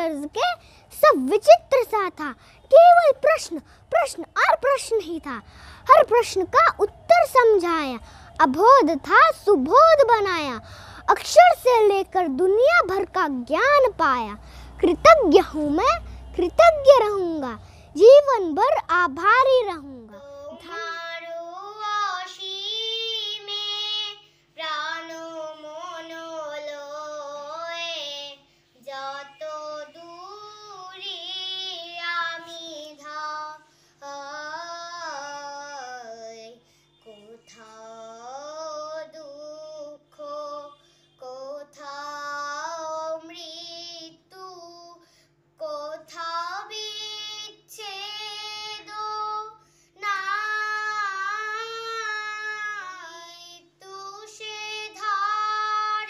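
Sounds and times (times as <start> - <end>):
faint steady hum: 0.0 - 56.0
girl singing: 0.0 - 56.0.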